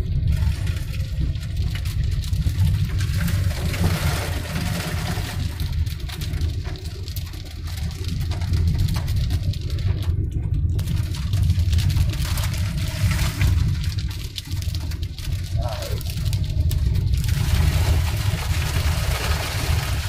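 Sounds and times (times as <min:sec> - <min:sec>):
engine and tyres rumbling: 0:00.0 - 0:20.0
water and ice hissing under tyres: 0:15.4 - 0:20.0.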